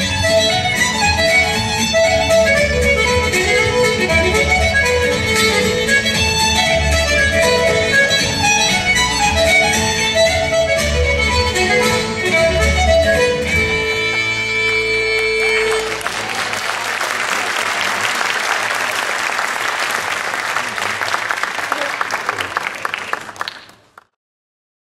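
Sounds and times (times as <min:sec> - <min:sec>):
irish dance music: 0:00.0 - 0:16.0
audience applauding: 0:14.1 - 0:24.1.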